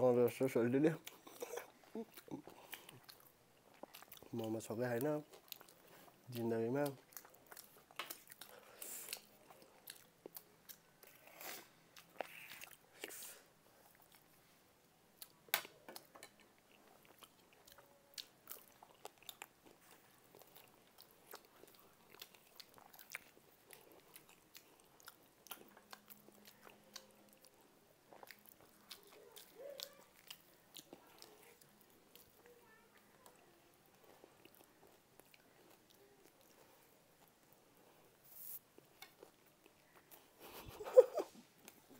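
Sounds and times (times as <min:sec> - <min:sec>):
chewing and biting: 0:01.1 - 0:04.5, 0:05.2 - 0:13.2, 0:16.0 - 0:32.5, 0:33.9 - 0:37.6.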